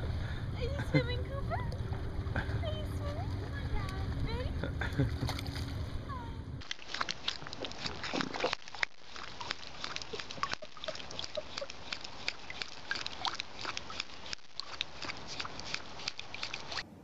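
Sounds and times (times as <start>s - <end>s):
animal lapping water: 0.0s - 4.2s, 4.8s - 5.8s, 6.6s - 16.8s.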